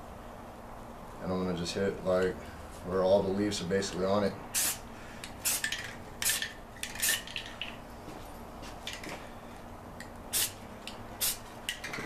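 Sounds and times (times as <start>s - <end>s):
spray can hissing bursts: 4.5s - 4.8s, 5.4s - 7.4s, 10.3s - 10.6s, 11.2s - 11.5s.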